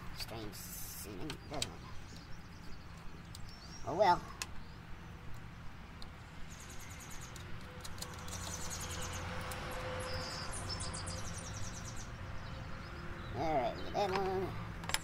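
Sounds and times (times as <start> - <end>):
wires and plastic connector rustling: 7.3 - 8.7.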